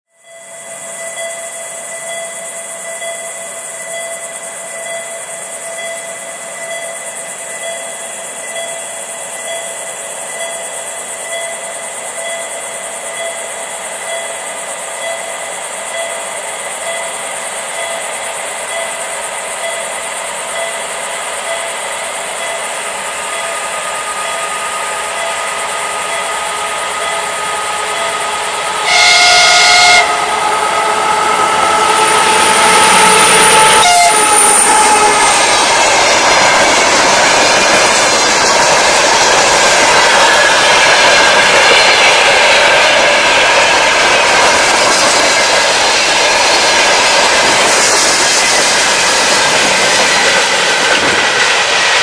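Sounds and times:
diesel locomotive approaching: 0.1s - 52.0s
locomotive horn blast: 24.0s - 35.3s.

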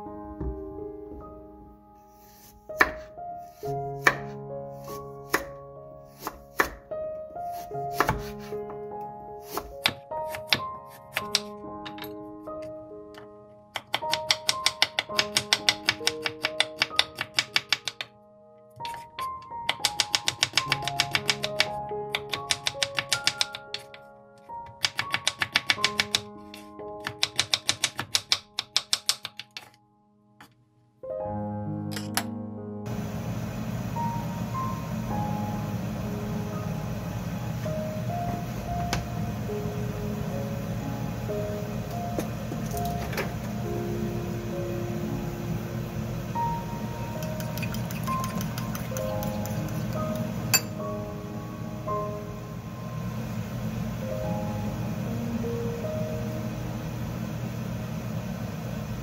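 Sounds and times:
gentle background music: 0.0s - 57.2s
knife chopping carrot on wooden board: 2.7s - 5.6s, 6.2s - 6.8s, 7.5s - 8.5s, 9.4s - 11.5s, 13.8s - 18.1s, 27.0s - 29.7s
knife chopping on wooden board: 2.8s - 3.1s, 4.0s - 4.4s, 5.3s - 5.5s, 6.2s - 6.8s, 7.5s - 8.5s, 9.5s - 11.5s.

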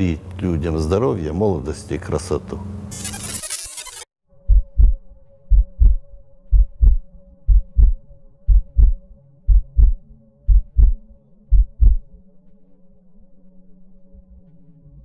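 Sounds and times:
faint steady drone: 4.3s - 15.0s
heartbeat thumps: 4.4s - 12.1s.

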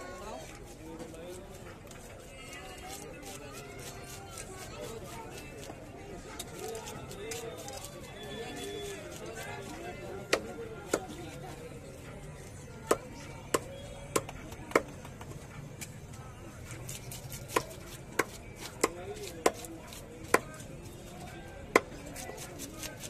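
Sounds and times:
knife chopping fish on a block: 10.2s - 11.3s, 12.8s - 15.3s, 16.9s - 20.6s, 21.7s - 23.0s.

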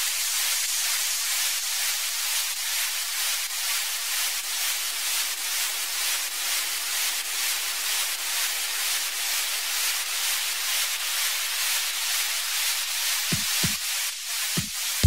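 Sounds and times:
kick drum thumps: 13.3s - 13.8s, 14.6s - 14.8s
synthesized noise wash: 13.3s - 13.8s.

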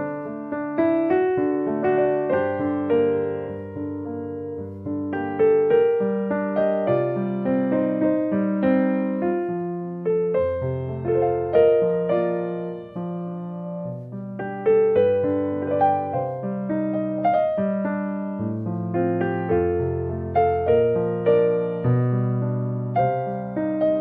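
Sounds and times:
gentle piano notes: 0.0s - 24.0s.

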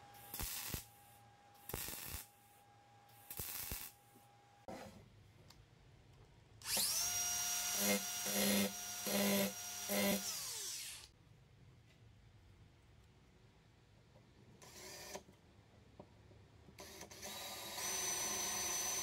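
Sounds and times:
angle grinder whining: 6.6s - 11.1s
grinder cutting steel bar: 6.6s - 11.1s.

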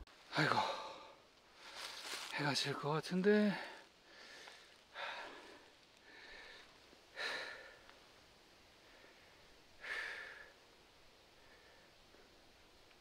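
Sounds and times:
person breathing heavily: 0.4s - 2.3s, 3.5s - 8.0s, 8.7s - 10.6s, 11.3s - 12.5s.

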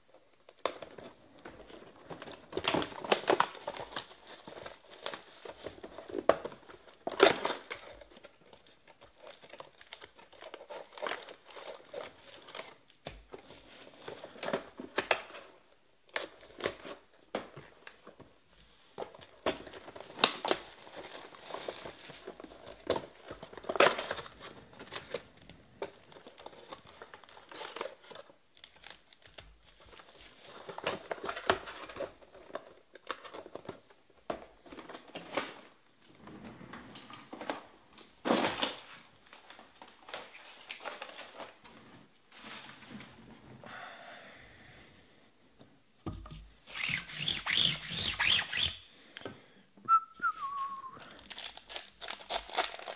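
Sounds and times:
plastic wrapping crinkling: 0.5s - 15.5s, 19.0s - 34.0s, 50.3s - 52.9s
plastic wrapping tearing: 46.7s - 48.8s, 51.0s - 52.9s.

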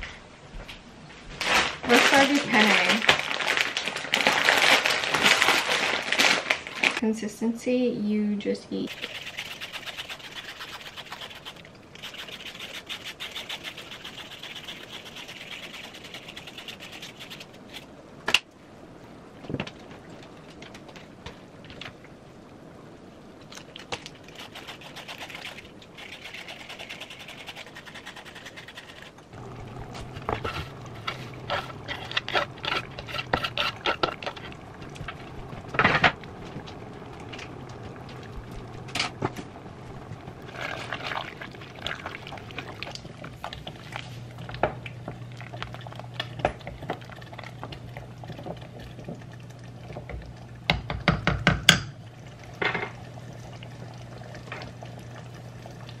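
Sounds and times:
steady low hum: 7.0s - 51.0s
vegetable peeler scraping carrot: 8.9s - 17.9s, 30.0s - 34.6s
utensils and pots clicking: 24.3s - 43.7s.

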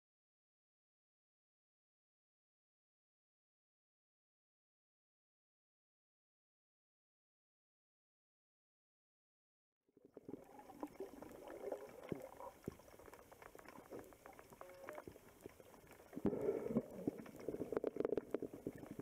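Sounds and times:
underwater bubbling and gurgling: 10.0s - 19.0s
small clicks and crackles: 10.1s - 19.0s.

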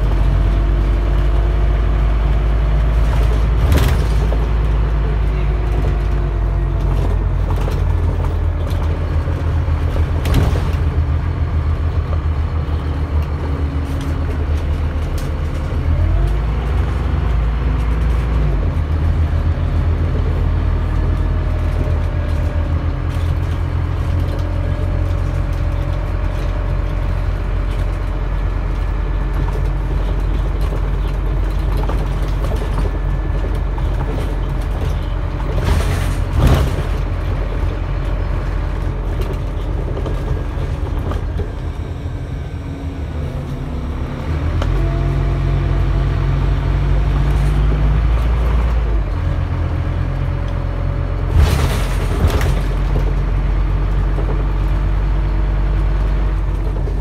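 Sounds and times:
bus engine drone with whine: 0.0s - 57.0s
bus knock or rattle: 3.0s - 6.2s, 6.8s - 11.2s, 29.4s - 37.8s.

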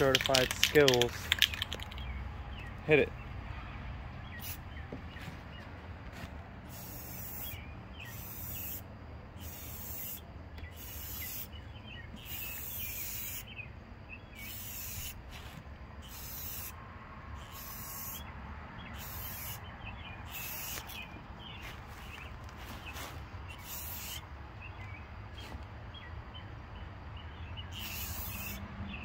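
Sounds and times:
aerosol can spraying: 4.4s - 4.6s, 6.7s - 8.8s, 9.4s - 10.2s, 10.8s - 11.5s, 12.2s - 13.4s, 14.4s - 15.5s, 16.1s - 16.7s, 17.5s - 18.2s, 19.0s - 19.6s, 20.3s - 21.0s, 23.6s - 24.2s, 27.8s - 28.6s.

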